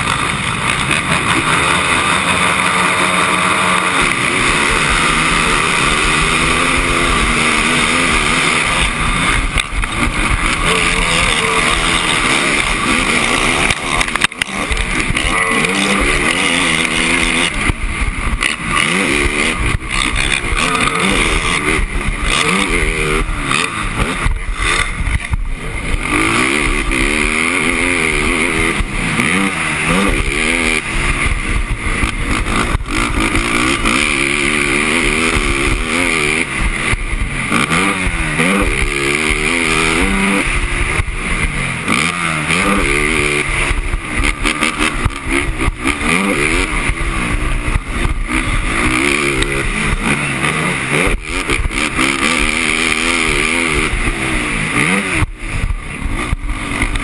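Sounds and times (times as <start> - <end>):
other quads: 0.0 - 57.0
quad engine revving hard: 0.0 - 57.0.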